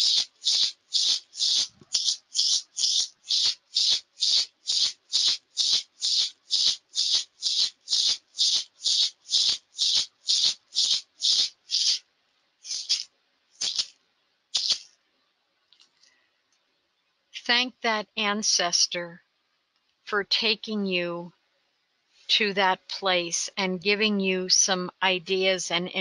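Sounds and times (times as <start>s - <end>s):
hand rattle shaking: 0.0s - 12.0s, 12.6s - 14.0s, 14.6s - 15.0s.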